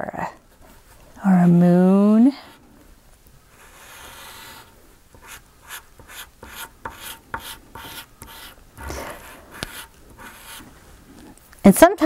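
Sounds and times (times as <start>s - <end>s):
pastel scrubbing on paper: 3.6s - 10.7s.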